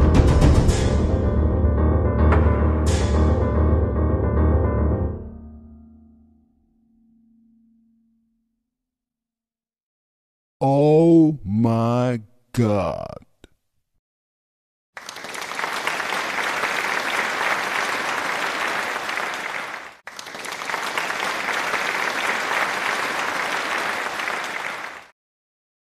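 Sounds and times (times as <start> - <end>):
applause: 15.0 - 25.1.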